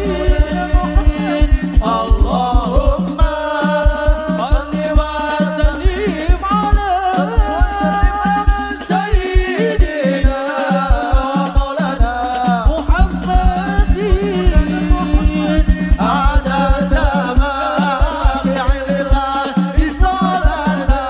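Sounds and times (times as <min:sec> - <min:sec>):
deep bass drum beating: 0:00.0 - 0:09.5, 0:12.6 - 0:19.2
person singing melismatic melody: 0:00.0 - 0:19.0
frame drums: 0:00.0 - 0:21.0.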